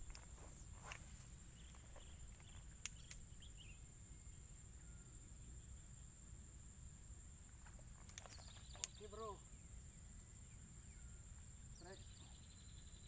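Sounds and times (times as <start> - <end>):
insect drone: 0.0 - 13.0
soft clicks: 2.4 - 3.2.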